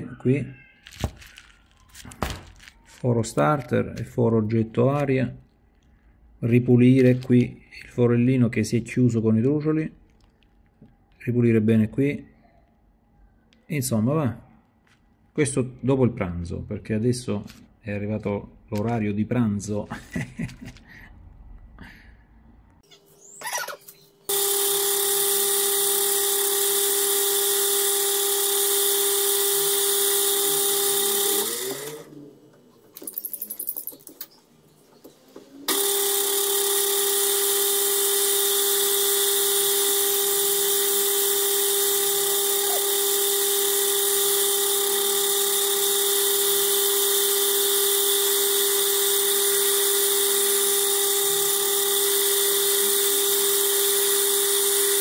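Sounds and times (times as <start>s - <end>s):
metal lathe whining: 24.3s - 32.6s, 35.7s - 55.0s.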